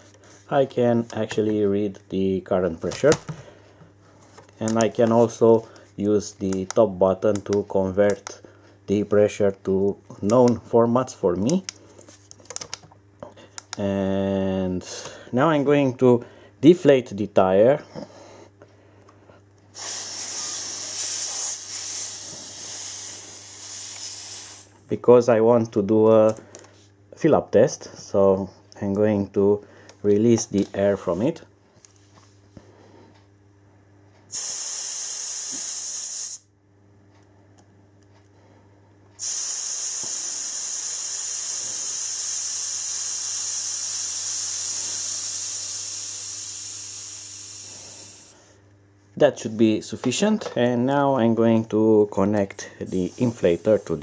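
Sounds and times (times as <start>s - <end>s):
air hissing from tire valve: 19.7s - 24.8s, 34.3s - 36.5s, 39.2s - 48.4s.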